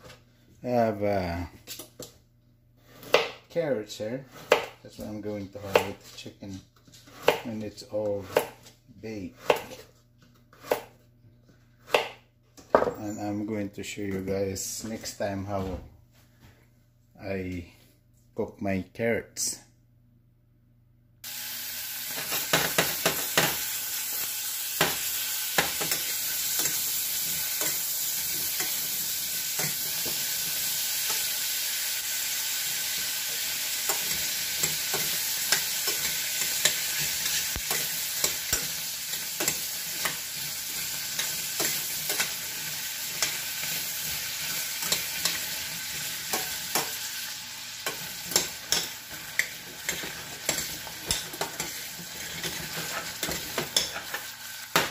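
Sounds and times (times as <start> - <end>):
carrots sizzling in a saucepan: 21.2 - 54.9.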